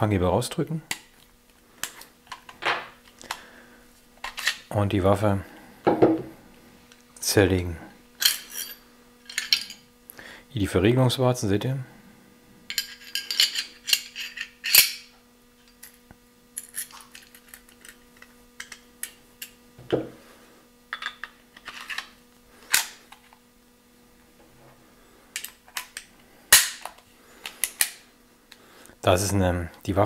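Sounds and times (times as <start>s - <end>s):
metal pistol parts clinking: 12.7s - 15.1s.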